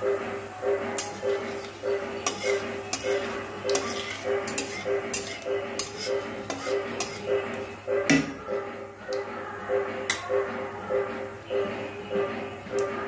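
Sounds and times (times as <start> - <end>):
background music: 0.0 - 13.0
spatula clinking and scraping pan: 0.9 - 8.4.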